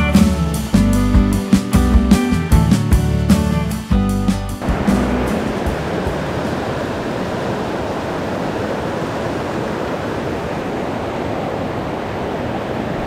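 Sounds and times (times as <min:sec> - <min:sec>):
river rushing: 0:04.6 - 0:13.0.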